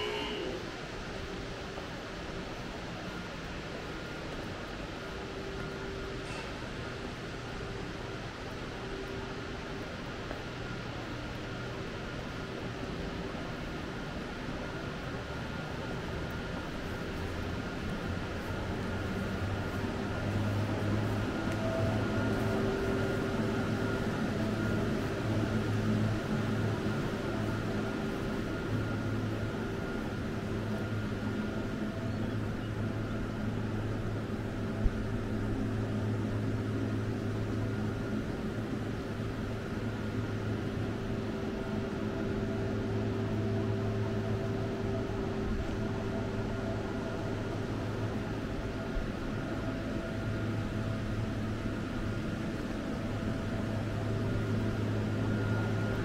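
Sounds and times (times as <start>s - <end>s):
machinery hum: 0.0s - 56.0s.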